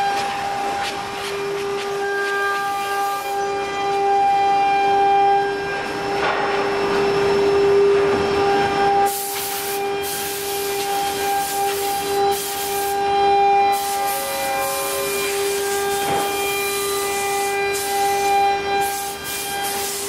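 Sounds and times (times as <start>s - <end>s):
router machine whine: 0.0s - 20.0s
hiss bursts: 9.0s - 13.0s, 13.7s - 20.0s.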